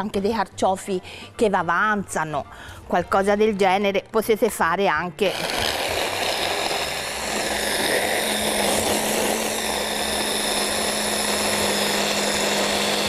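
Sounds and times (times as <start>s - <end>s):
hand blender whirring: 5.2s - 13.0s.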